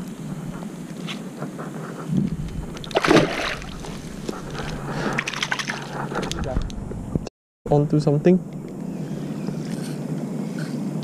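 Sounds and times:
fish splashing in water: 2.8s - 4.2s.

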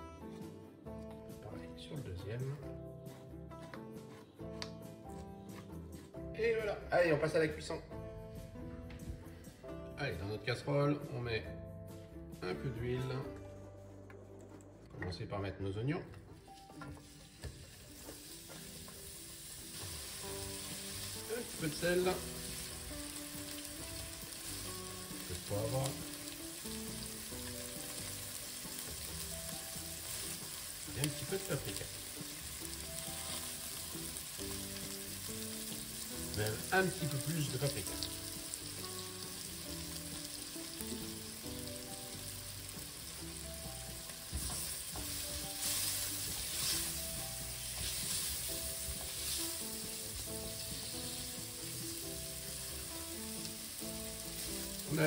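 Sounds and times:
soft background melody: 0.0s - 55.0s
onions sizzling in oil: 16.6s - 55.0s
spatula stirring in pot: 44.2s - 51.3s.

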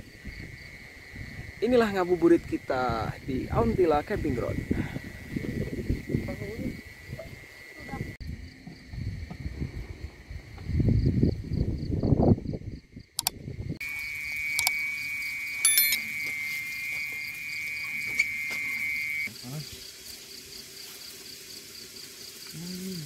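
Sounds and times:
insects chirping: 0.0s - 23.0s
shrill insect buzz: 13.8s - 19.7s.

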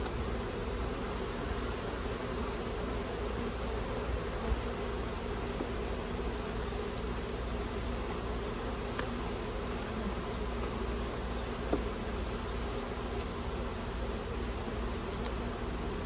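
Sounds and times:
honeybees buzzing: 0.0s - 16.0s
brief tap on hive: 8.9s - 9.2s, 11.6s - 11.9s.

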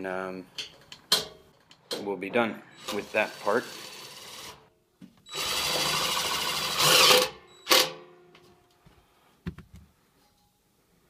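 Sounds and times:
cordless drill driving screw: 5.3s - 7.9s.

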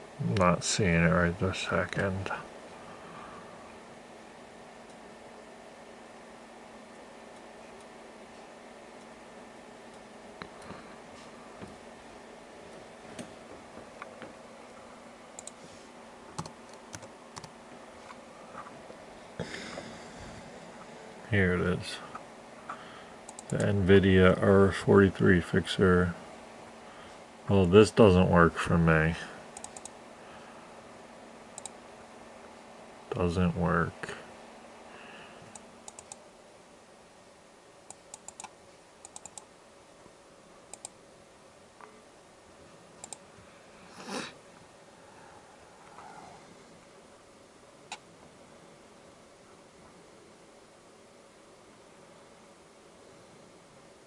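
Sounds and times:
faint steady hum: 0.0s - 54.0s
keyboard and mouse clicks: 15.4s - 15.6s, 16.4s - 17.5s, 23.3s - 23.7s, 29.6s - 29.9s, 31.6s - 31.8s, 35.5s - 36.2s, 37.9s - 39.5s, 40.7s - 41.0s, 43.0s - 43.2s.

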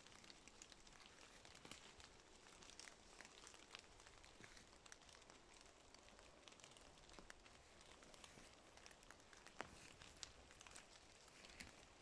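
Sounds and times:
faint outdoor ambience: 0.0s - 12.0s
small ticks and crackles: 0.0s - 12.0s.

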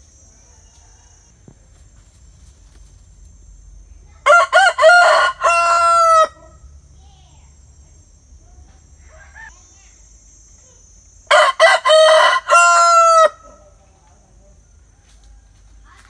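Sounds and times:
rooster crowing: 0.3s - 1.5s, 4.2s - 6.7s, 11.3s - 13.8s.

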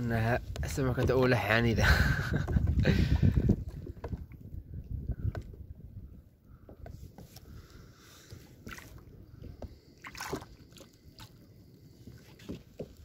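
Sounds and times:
wind rumbling on microphone: 0.0s - 7.9s
water sloshing against a hull: 0.0s - 13.0s.

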